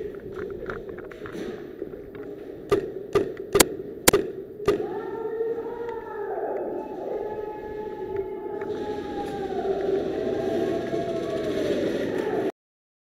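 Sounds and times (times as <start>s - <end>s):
airsoft pistol shots: 2.7s - 5.0s
siren: 4.8s - 12.5s.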